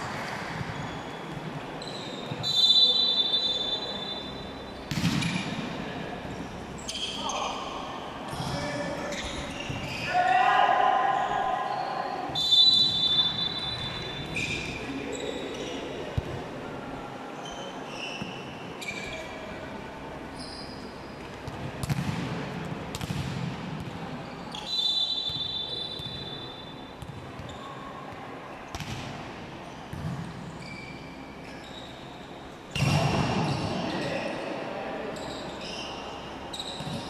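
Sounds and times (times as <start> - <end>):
sneakers squeaking on court: 0.2 - 2.7, 9.1 - 10.1, 12.9 - 16.4, 17.4 - 19.5, 35.1 - 37.0
referee's whistle: 1.8 - 4.5, 11.7 - 14.6, 24.6 - 26.8
volleyball strikes: 4.9 - 5.8, 21.4 - 24.0.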